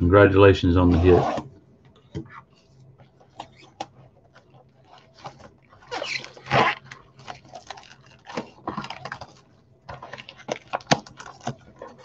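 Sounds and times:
card box wrapping crinkling: 3.2s - 12.0s.

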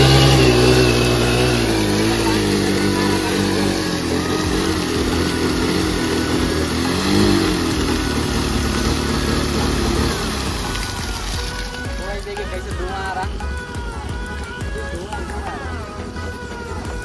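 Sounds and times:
scooter engine revving: 0.0s - 17.0s
wheel spraying water and mud: 0.0s - 17.0s.

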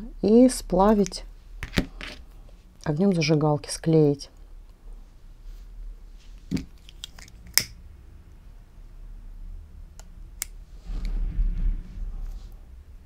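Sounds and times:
low rumble of handling: 10.1s - 13.0s.

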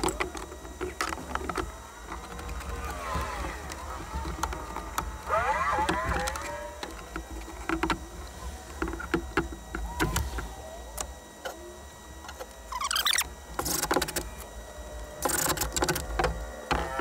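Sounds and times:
tools and plywood knocking: 5.8s - 8.1s.

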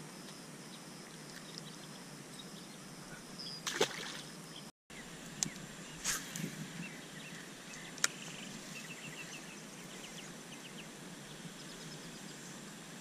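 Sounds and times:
fishing line swish: 6.0s - 6.6s.

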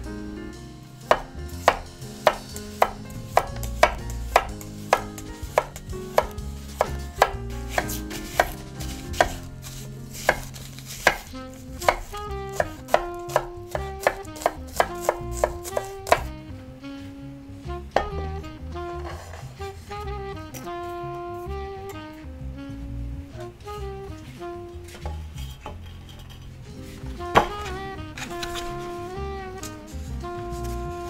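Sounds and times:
knife chopping on wooden board: 1.1s - 16.3s, 27.3s - 28.7s.

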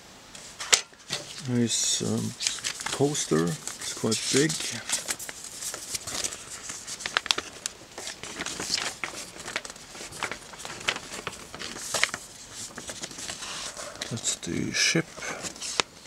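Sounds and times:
paper poster rustling: 0.4s - 16.0s
paper fold snaps: 1.1s - 14.3s, 15.2s - 16.0s.

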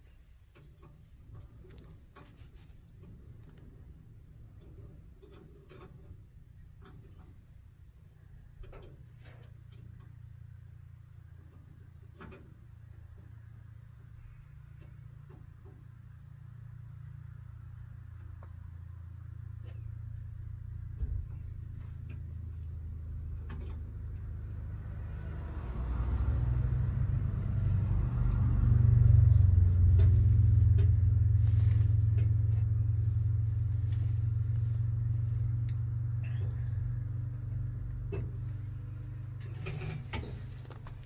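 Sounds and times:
vehicle passing by: 21.6s - 41.0s.

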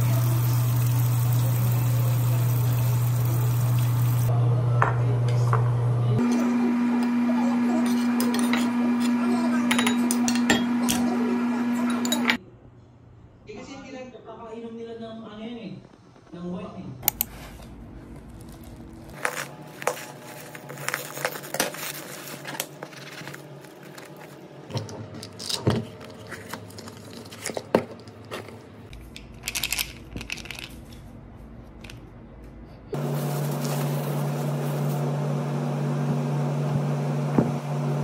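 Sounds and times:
bubble wrap and packaging crinkling: 17.6s - 31.1s, 33.0s - 34.9s.

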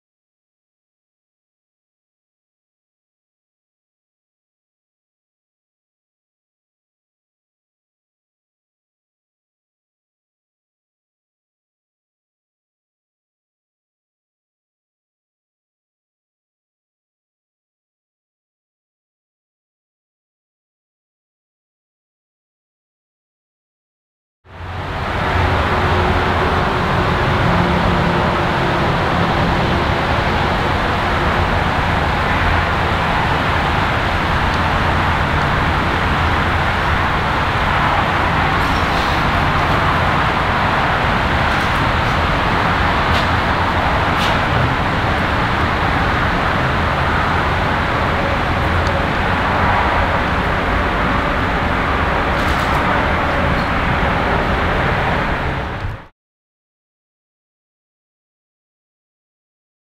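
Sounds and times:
diesel locomotive engine running: 24.5s - 56.1s.

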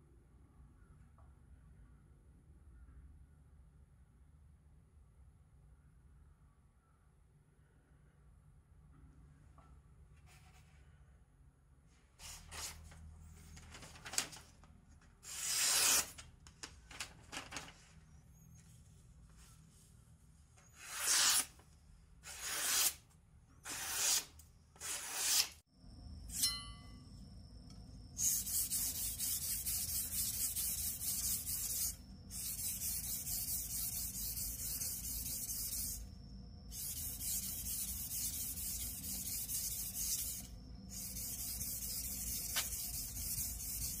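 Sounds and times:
knife slicing newspaper: 15.3s - 16.2s, 20.8s - 21.6s, 22.2s - 23.0s, 23.7s - 25.6s.

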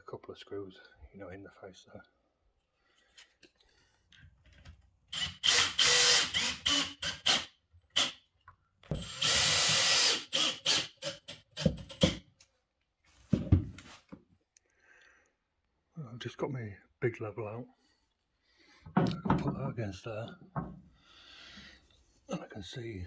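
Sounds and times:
cordless drill driving screws: 5.1s - 8.2s, 8.9s - 12.2s.

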